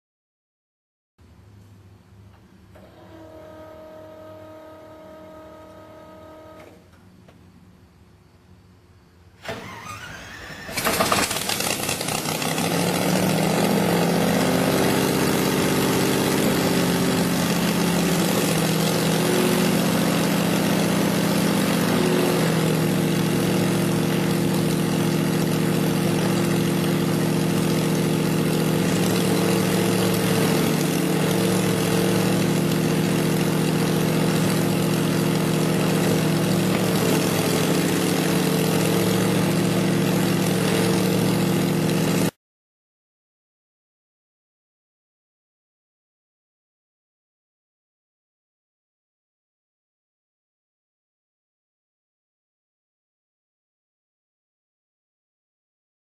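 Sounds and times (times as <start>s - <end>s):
propeller aircraft engine: 10.7s - 42.4s.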